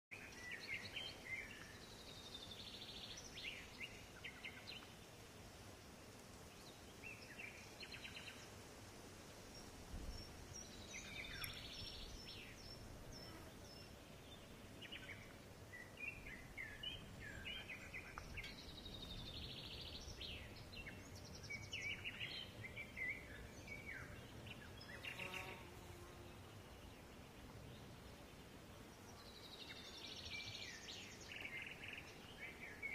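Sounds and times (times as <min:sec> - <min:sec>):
steady low hiss: 0:00.1 - 0:32.9
birds chirping and trilling: 0:10.1 - 0:32.9.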